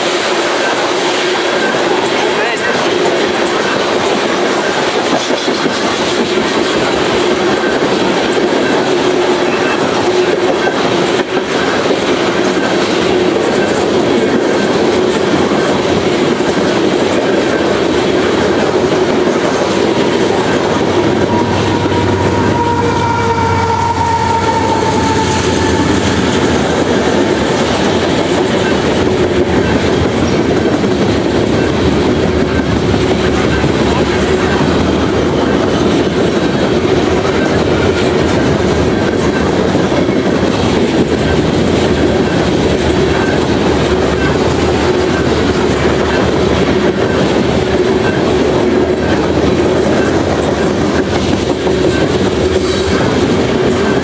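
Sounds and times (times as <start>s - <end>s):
train wheels rumbling on rails: 0.0s - 54.0s
high wheel squeal: 20.3s - 30.4s.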